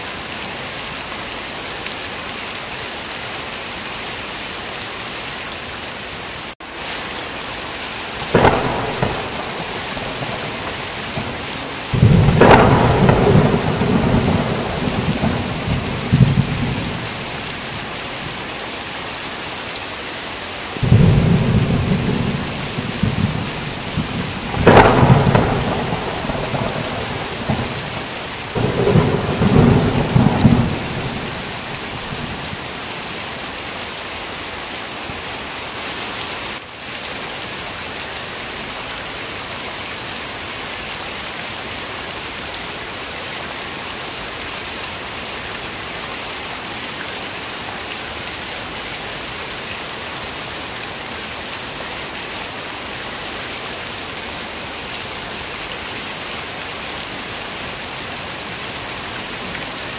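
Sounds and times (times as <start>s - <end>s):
heavy rain hissing: 0.0s - 59.9s
thunder rumbling: 8.2s - 18.4s, 20.8s - 33.1s.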